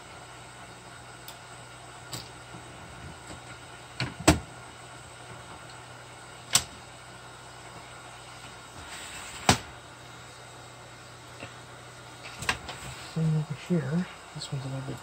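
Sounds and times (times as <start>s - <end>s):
steady low hum: 0.0s - 15.0s
cassette deck mechanism clicks: 6.5s - 6.7s.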